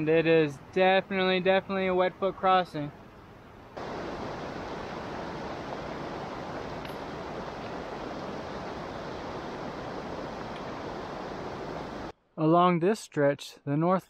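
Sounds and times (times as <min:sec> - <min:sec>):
river rushing: 0:03.8 - 0:12.1.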